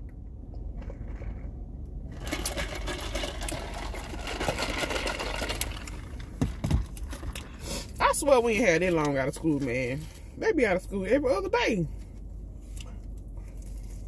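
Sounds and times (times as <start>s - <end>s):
plastic and cardboard crackling: 2.1s - 7.4s.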